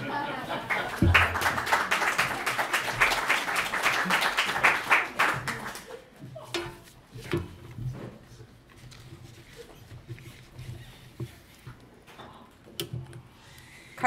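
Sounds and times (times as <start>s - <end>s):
audience applause: 0.0s - 6.0s.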